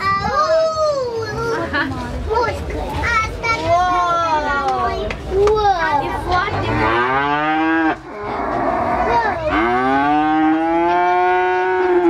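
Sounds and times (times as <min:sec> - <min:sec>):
cattle mooing: 0:06.6 - 0:12.0.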